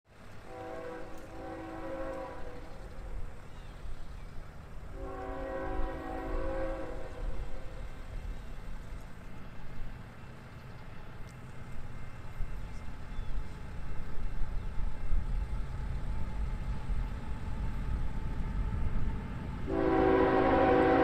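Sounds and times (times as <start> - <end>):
locomotive air horn blasts: 0.4 - 2.8, 4.9 - 7.7, 19.7 - 21.0.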